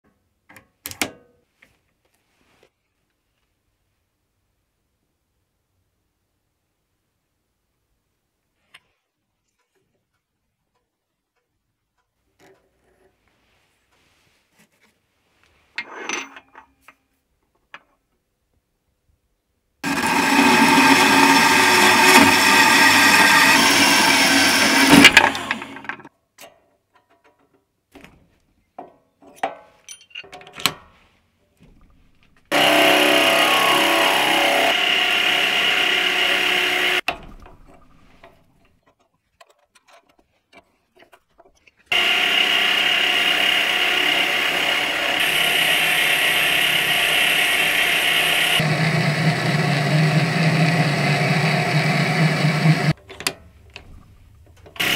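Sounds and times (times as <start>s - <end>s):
band saw cutting steel: 19.8s - 26.1s, 32.5s - 37.0s, 41.9s - 53.0s
lathe cutting metal: 19.8s - 26.1s, 32.5s - 37.0s, 41.9s - 53.0s
lathe drilling into metal: 19.8s - 26.1s, 32.5s - 37.0s, 41.9s - 53.0s.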